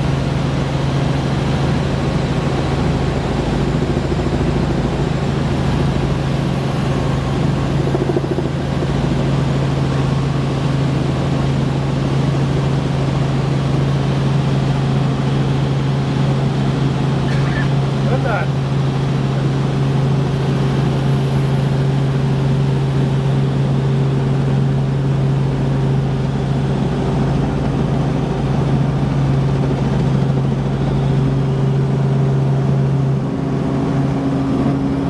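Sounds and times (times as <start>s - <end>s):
helicopter engine and rotor drone: 0.0s - 35.0s.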